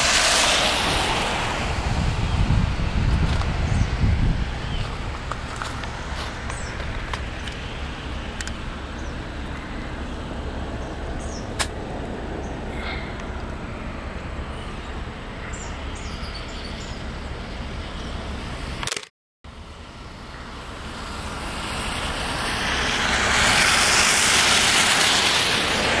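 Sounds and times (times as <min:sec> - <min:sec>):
tyre hiss on wet road: 0:00.0 - 0:02.2, 0:20.6 - 0:26.0.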